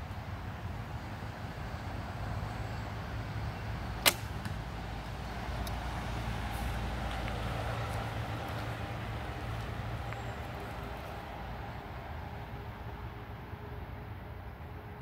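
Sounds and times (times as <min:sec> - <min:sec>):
bowstring snap: 0:04.0 - 0:04.6.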